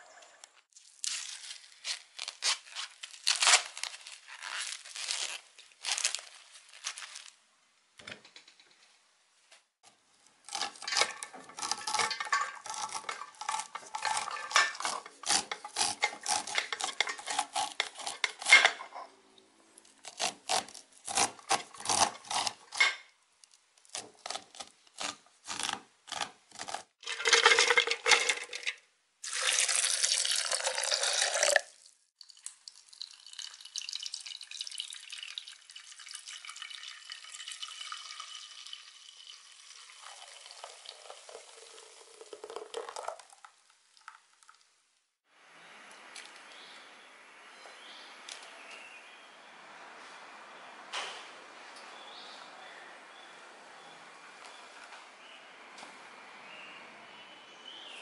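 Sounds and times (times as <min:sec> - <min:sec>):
knife scraping corn cob: 0:10.5 - 0:19.1, 0:20.0 - 0:23.1, 0:23.9 - 0:27.3.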